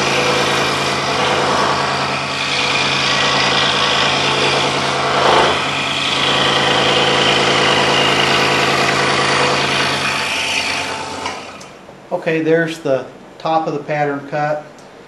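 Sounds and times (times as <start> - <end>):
scroll saw cutting wood: 0.0 - 11.7.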